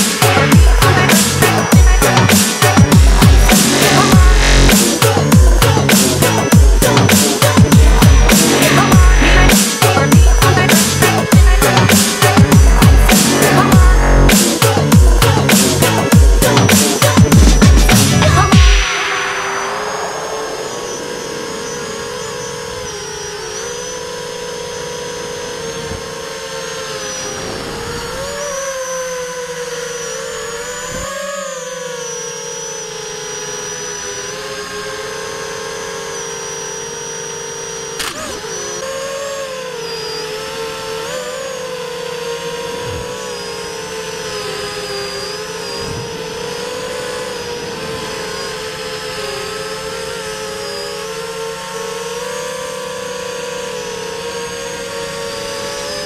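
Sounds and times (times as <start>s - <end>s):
drone motors whining: 0.0s - 56.0s
sharp click: 38.0s - 38.5s.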